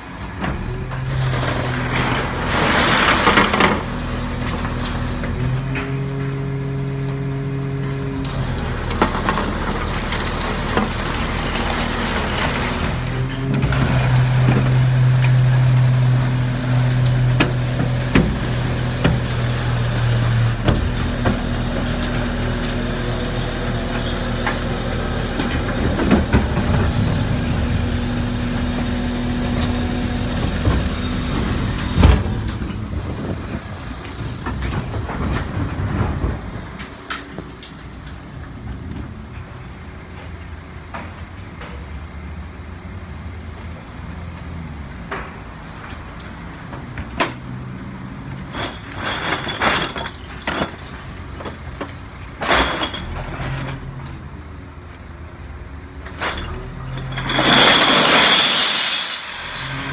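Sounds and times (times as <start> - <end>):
truck engine humming: 3.9 - 34.2.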